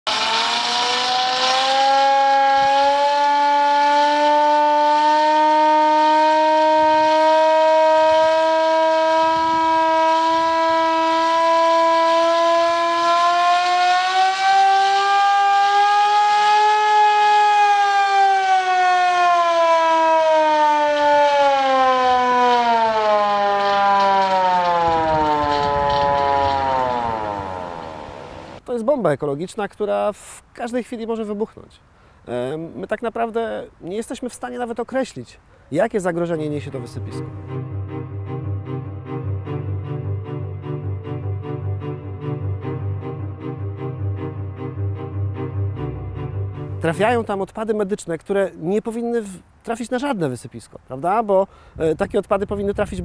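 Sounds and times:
siren wailing: 0.1 - 28.6.

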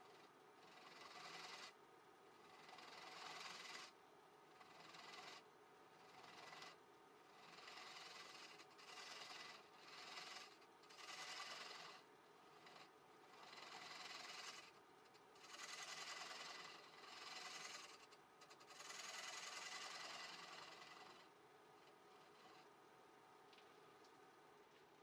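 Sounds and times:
gouge cutting wood on lathe: 7.4 - 12.0, 15.4 - 21.2.

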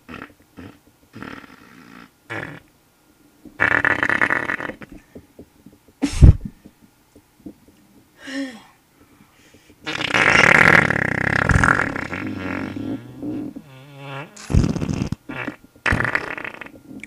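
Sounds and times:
farting: 0.1 - 2.7, 3.6 - 5.0, 9.8 - 17.0.

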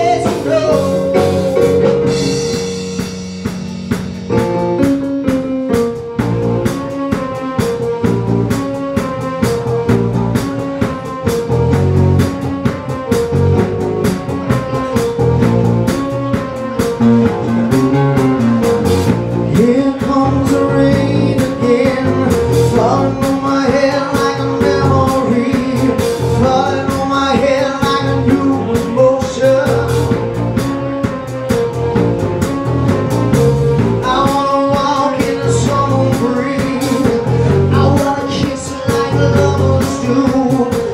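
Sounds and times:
man singing into microphone: 0.0 - 2.0, 19.5 - 30.2, 34.0 - 40.9
rock band playing: 0.0 - 40.9.

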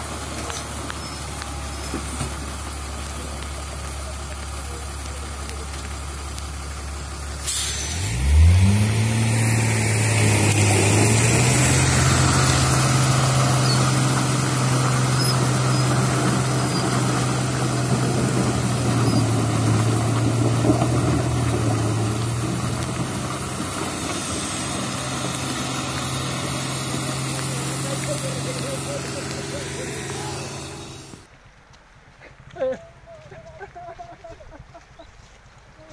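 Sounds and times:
diesel truck engine: 0.0 - 31.3
air brake hiss: 7.4 - 8.1.

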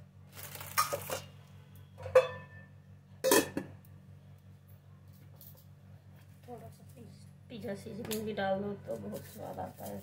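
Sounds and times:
faint low hum: 0.0 - 10.0
steel kitchenware clinking: 2.0 - 3.7.

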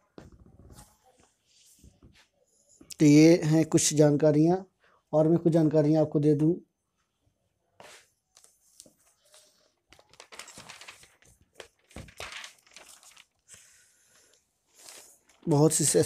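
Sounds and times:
rustling and crinkling handling noise: 7.8 - 16.0.

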